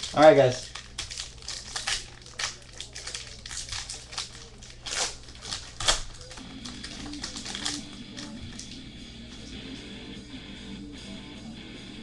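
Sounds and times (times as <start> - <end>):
foil wrapper crinkling and tearing: 0.0 - 8.8
faint guitar music: 6.4 - 12.0.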